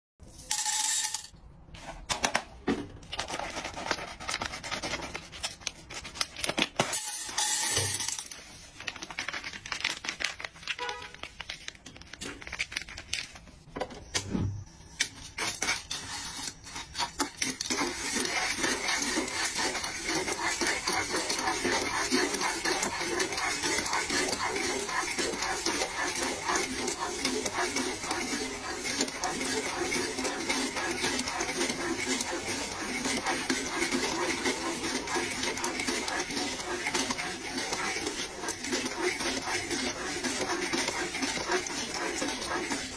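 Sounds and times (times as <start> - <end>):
spatula stirring kernels in pan: 6.9 - 8.3, 15.4 - 42.9.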